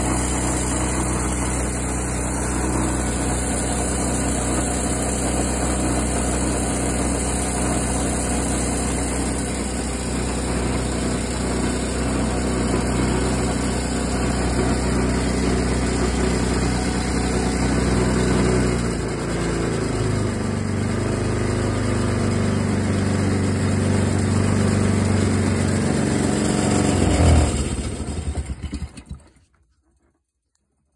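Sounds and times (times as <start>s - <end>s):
small gasoline engine running: 0.0s - 29.5s.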